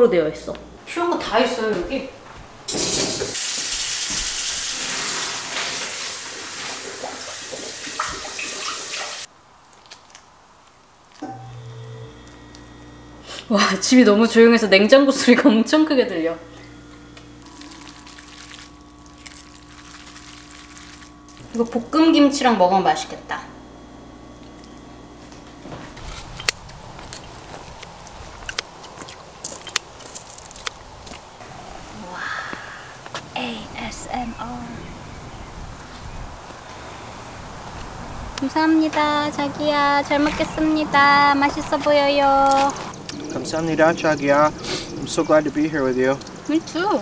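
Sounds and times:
faucet running into saucepan: 0:02.7 - 0:09.3, 0:17.4 - 0:21.4
refrigerator hum: 0:11.0 - 0:47.0.

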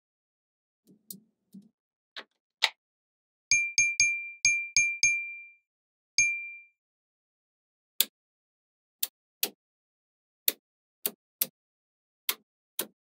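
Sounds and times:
sharp metallic dings: 0:03.5 - 0:05.6, 0:06.2 - 0:06.7.

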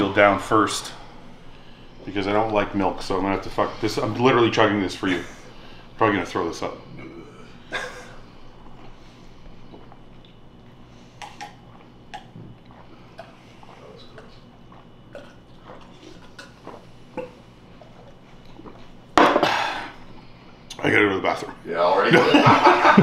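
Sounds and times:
man gulping milk: 0:09.6 - 0:20.3.

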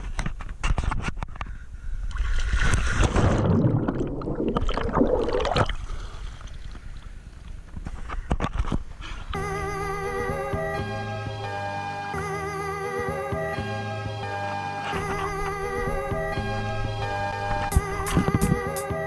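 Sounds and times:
water splashing and bubbling: 0:02.1 - 0:07.7
music: 0:09.4 - 0:19.0.

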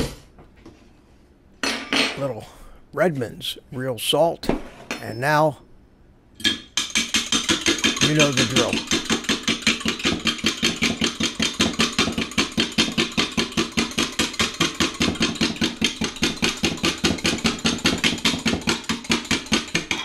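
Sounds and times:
fork beating eggs in glass cup: 0:06.8 - 0:20.0.

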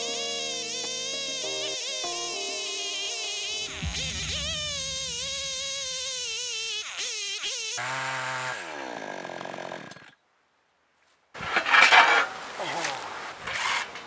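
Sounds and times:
chainsaw cutting: 0:00.0 - 0:10.2.

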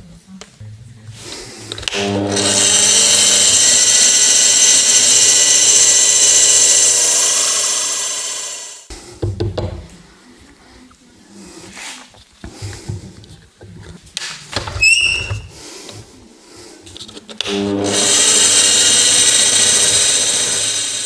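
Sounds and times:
power drill boring through rubber: 0:01.8 - 0:08.9, 0:17.4 - 0:21.0.

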